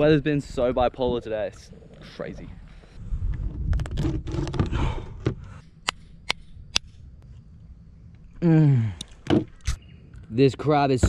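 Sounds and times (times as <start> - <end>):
man's wordless falling groan: 8.4 - 9.0.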